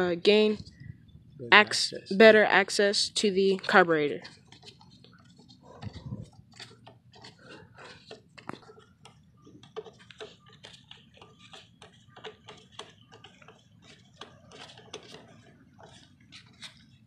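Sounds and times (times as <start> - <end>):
screwdriver ticking: 8.0 - 16.0.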